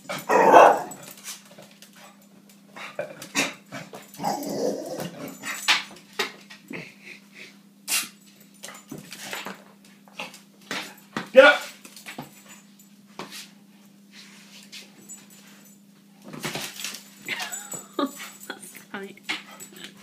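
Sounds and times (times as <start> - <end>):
dog barking: 0.3 - 1.0.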